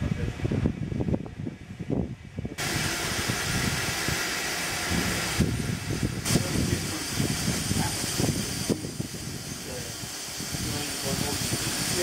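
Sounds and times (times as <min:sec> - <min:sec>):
steam locomotive hissing steam: 0:02.6 - 0:12.0.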